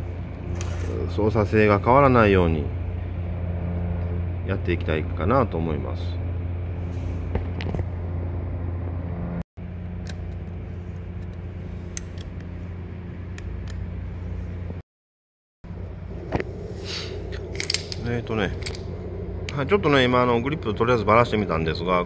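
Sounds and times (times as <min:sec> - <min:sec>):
low mechanical hum: 0:00.0 - 0:14.8, 0:15.7 - 0:22.0
spanner metallic clicks: 0:17.3 - 0:19.6.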